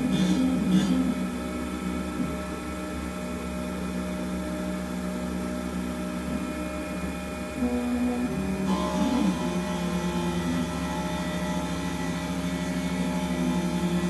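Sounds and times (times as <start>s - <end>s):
lathe motors humming: 0.0s - 14.0s.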